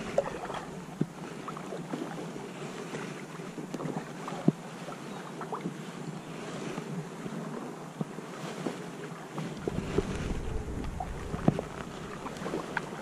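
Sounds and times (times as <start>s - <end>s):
water wash: 0.0s - 5.7s, 9.4s - 13.0s
paddle splashing water: 0.0s - 13.0s
wind: 0.0s - 13.0s.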